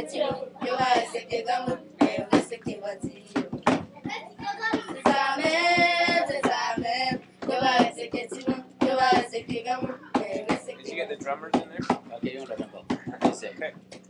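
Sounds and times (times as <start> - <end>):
children singing in unison: 0.0 - 3.1, 4.7 - 10.9
hand claps: 0.8 - 1.2, 3.4 - 3.9, 11.5 - 14.0.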